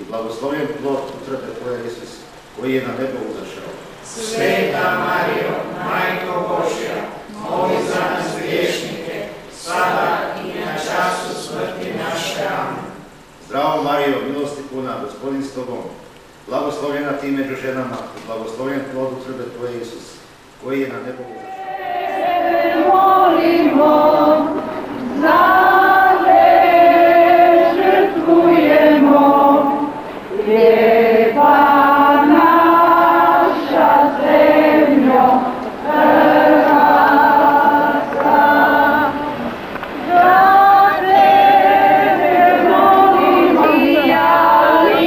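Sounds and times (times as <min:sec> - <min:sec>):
group singing a slow song: 0:03.8 - 0:13.4, 0:21.2 - 0:45.0.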